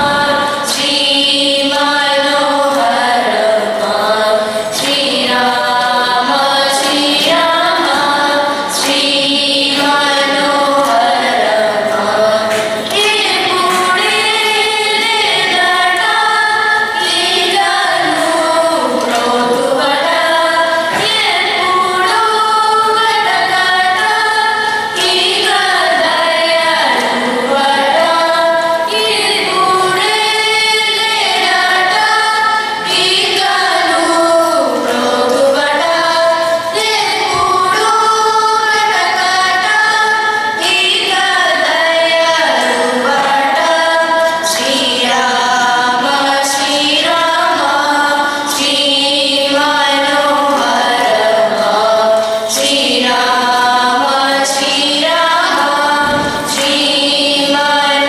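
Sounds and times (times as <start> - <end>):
children singing together: 0.0 - 58.0.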